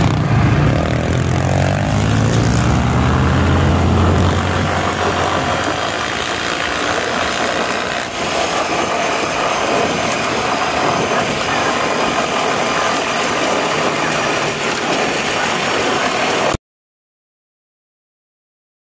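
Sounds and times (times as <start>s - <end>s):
wind rushing: 0.0s - 13.4s
tyres on gravel: 0.0s - 16.5s
off-road vehicle engine running: 0.0s - 16.6s.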